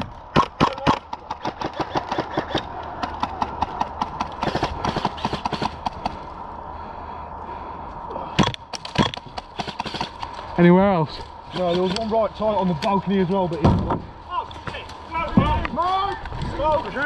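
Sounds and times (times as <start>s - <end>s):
airsoft guns firing: 0.3s - 6.2s, 8.4s - 10.2s.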